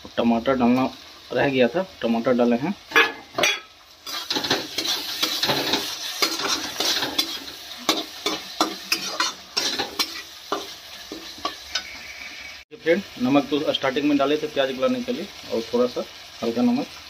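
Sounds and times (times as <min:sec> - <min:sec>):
spices sizzling in oil: 0:00.0 - 0:17.0
metal spatula scraping a pan: 0:02.9 - 0:12.6.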